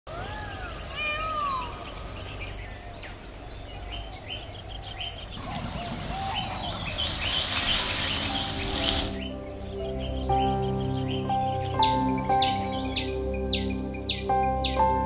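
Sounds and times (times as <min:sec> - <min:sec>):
birds chirping and whistling: 0:00.2 - 0:15.0
hiss: 0:05.4 - 0:09.3.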